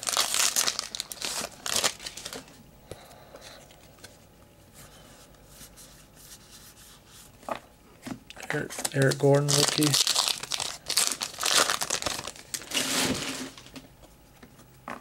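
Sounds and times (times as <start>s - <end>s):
cards rustling: 0.0s - 2.5s, 8.5s - 13.8s
wrapper crinkling and tearing: 0.0s - 2.5s, 8.5s - 13.8s.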